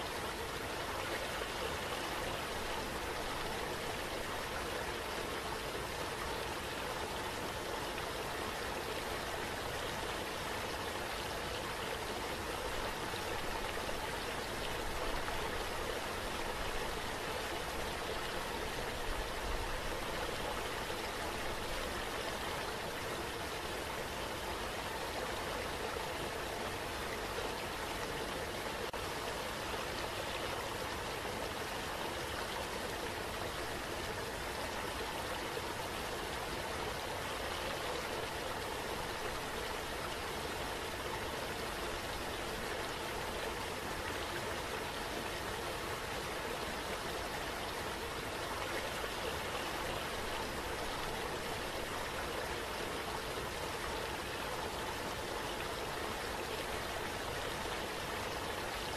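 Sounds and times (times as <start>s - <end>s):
running water rushing: 0.0s - 58.9s.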